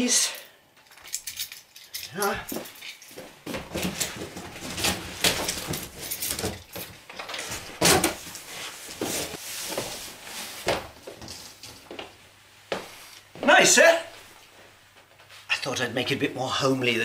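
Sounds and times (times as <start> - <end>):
cardboard rustling and scraping: 3.6 - 6.5, 7.4 - 11.6.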